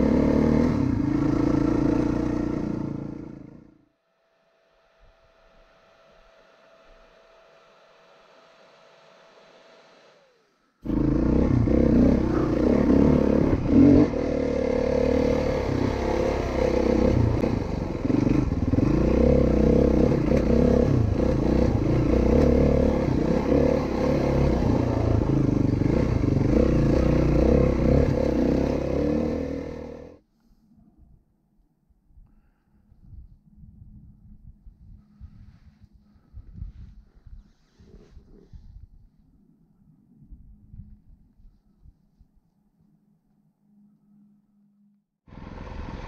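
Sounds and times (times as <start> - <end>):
dirt bike engine running: 0.0 - 3.7, 10.8 - 30.2, 45.3 - 46.0
engine clatter: 10.8 - 30.2, 45.3 - 46.0.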